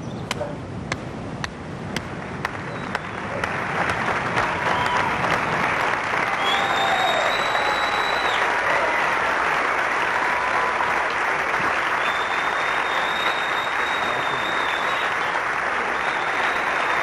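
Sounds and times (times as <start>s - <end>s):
audience applauding: 2.0s - 17.0s
long high whistle: 6.3s - 8.5s, 12.0s - 15.3s.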